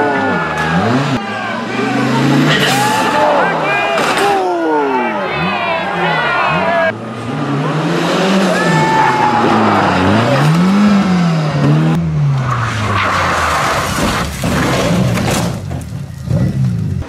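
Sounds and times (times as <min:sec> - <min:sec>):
rally car engine revving: 0:00.0 - 0:17.0
tyres skidding: 0:00.0 - 0:17.0
car hitting earth bank: 0:12.4 - 0:17.0.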